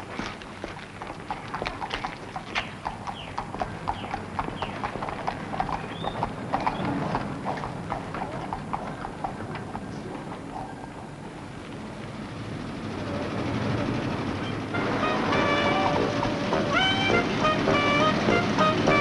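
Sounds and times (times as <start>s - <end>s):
clopping footfalls on paving: 0.0s - 10.4s, 15.4s - 19.0s.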